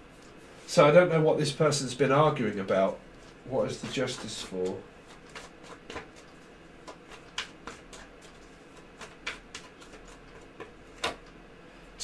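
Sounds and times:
cards clicking and slapping: 3.8s - 11.4s.

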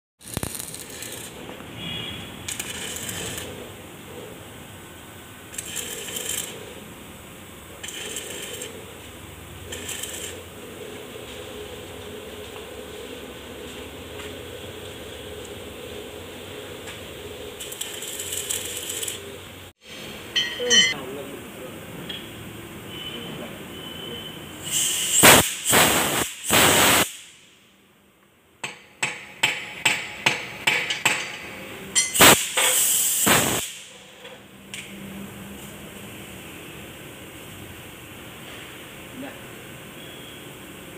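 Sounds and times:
arc welding crackling: 0.2s - 4.5s, 5.4s - 13.2s, 16.8s - 19.7s, 24.6s - 27.4s, 32.0s - 34.1s
bursts of hissing noise: 24.6s - 27.6s, 32.2s - 34.0s.

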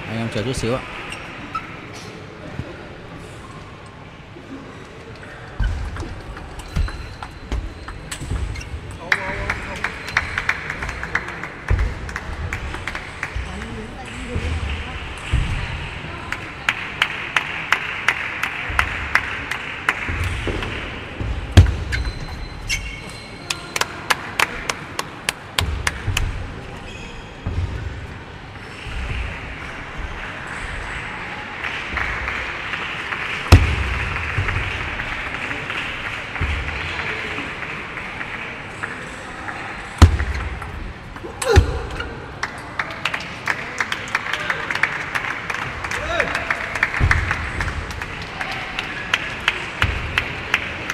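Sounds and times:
shoe squeaks: 5.6s - 8.9s, 21.8s - 23.8s, 26.6s - 27.5s
applause: 9.0s - 14.8s, 16.3s - 20.9s, 23.5s - 26.0s, 31.4s - 39.2s, 42.4s - 50.9s.

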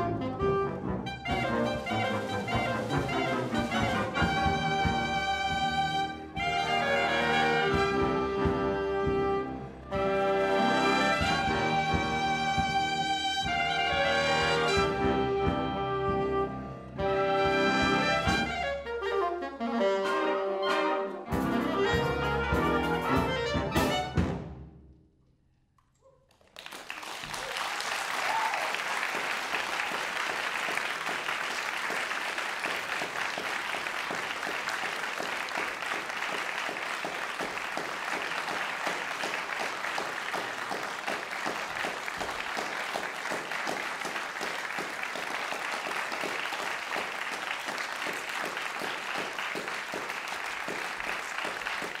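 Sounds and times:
audience applause: 26.3s - 52.0s.

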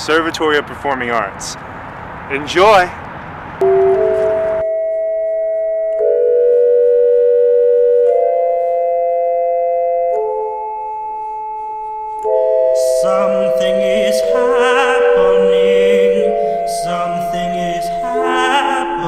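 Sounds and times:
slow music of held chords: 3.8s - 19.0s.

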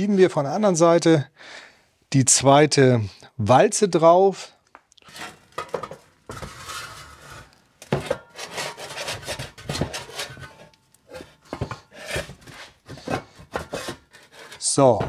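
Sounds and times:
metal scraping and rubbing: 5.0s - 15.0s.

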